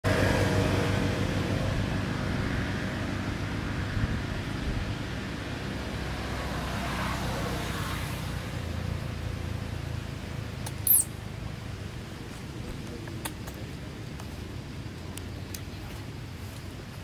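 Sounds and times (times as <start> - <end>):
high-pitched falling squeak: 10.8 - 11.1.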